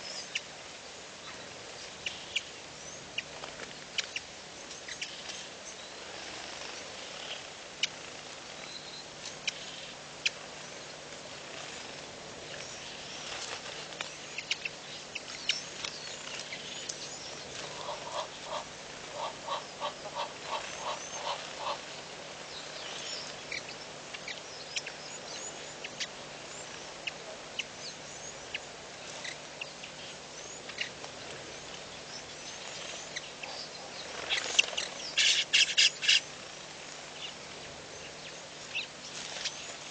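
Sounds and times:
background hiss: 0:00.0 - 0:39.9
birds chirping and twittering: 0:00.0 - 0:39.9
low pulsed bird calls: 0:14.2 - 0:36.4.

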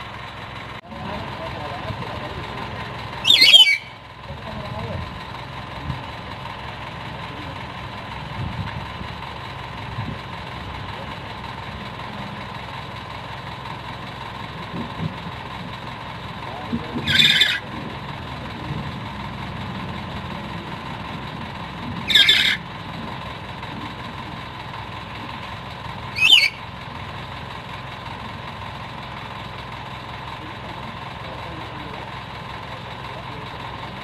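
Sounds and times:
parrot harsh screeches: 0:03.2 - 0:04.0, 0:17.0 - 0:17.6, 0:22.0 - 0:22.6, 0:26.1 - 0:26.6.

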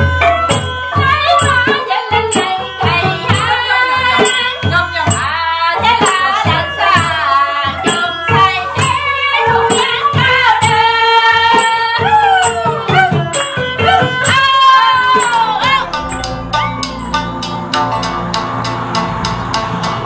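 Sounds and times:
drum and small cymbal strikes: 0:00.0 - 0:20.0
high sung melody: 0:00.0 - 0:20.0
droning note: 0:13.5 - 0:20.0.

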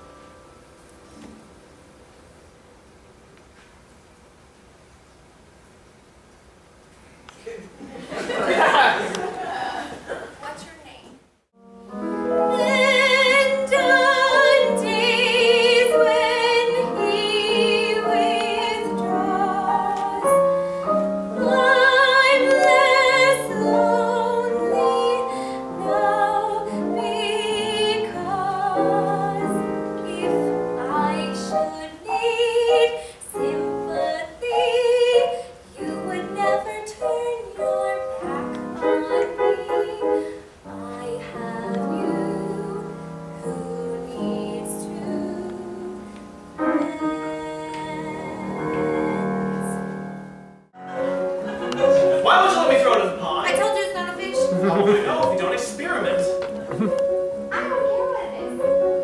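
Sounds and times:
piano accompaniment: 0:00.0 - 0:03.3, 0:11.5 - 0:59.0
woman singing with vibrato: 0:12.4 - 0:50.0.

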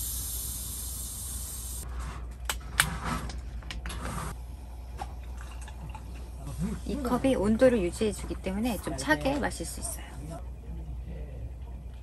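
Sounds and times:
gas hissing from bottle: 0:00.0 - 0:01.9.

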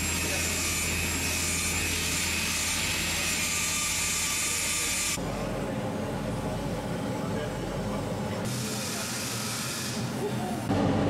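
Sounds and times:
rotary tool cutting metal: 0:00.0 - 0:05.2.

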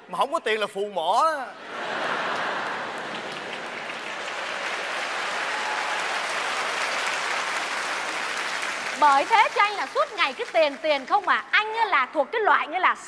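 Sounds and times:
audience applauding: 0:01.9 - 0:11.7.

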